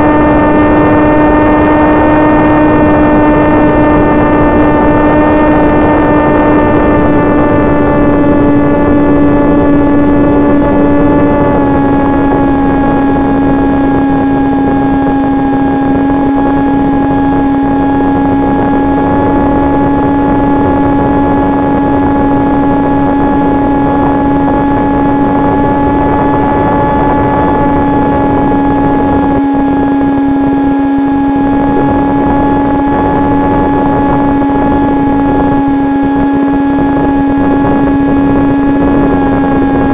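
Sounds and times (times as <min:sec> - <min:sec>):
electric motor propeller droning: 0:00.0 - 0:39.9
wind noise: 0:00.0 - 0:39.9.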